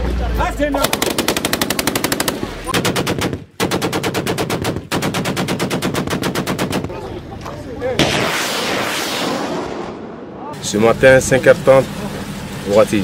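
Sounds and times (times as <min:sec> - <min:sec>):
machine gun automatic bursts: 0:00.8 - 0:06.9.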